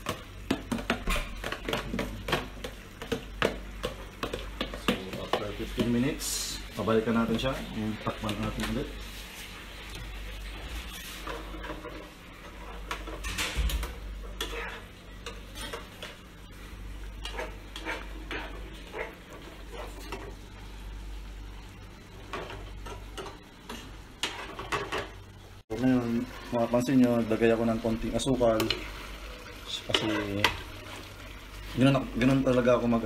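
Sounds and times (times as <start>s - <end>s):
faint sizzle: 0.0s - 33.0s
metal spoon scraping frying pan: 10.8s - 13.5s, 14.2s - 16.1s, 17.2s - 20.3s.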